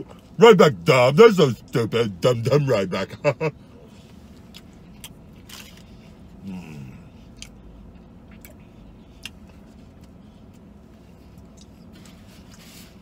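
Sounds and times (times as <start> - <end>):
steady low background hum: 0.0 - 13.0
person chewing food: 4.3 - 12.6.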